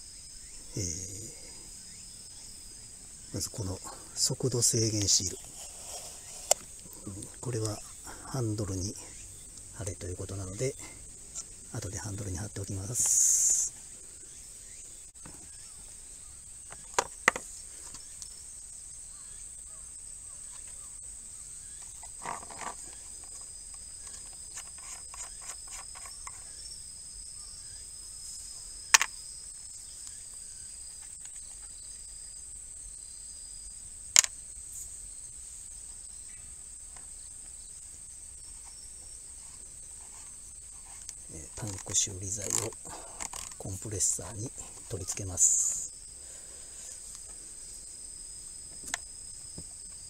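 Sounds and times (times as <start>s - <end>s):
insects droning: 0.0s - 50.0s
plastic case clicks and knocks: 16.7s - 18.0s, 28.9s - 29.1s.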